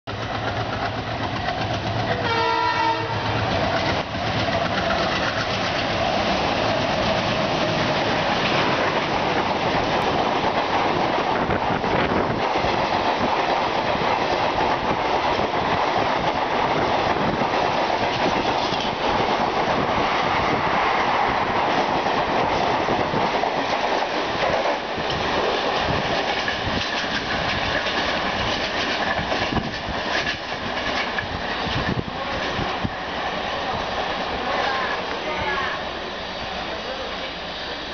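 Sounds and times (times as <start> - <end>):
diesel locomotive chugging: 0.1 - 12.4
train wheels clattering on rails: 0.1 - 32.9
locomotive horn blast: 2.1 - 3.3.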